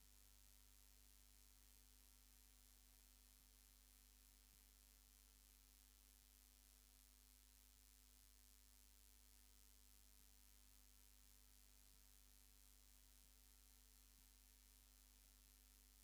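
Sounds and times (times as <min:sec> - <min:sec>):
faint mains hum with hiss: 0:00.0 - 0:16.0.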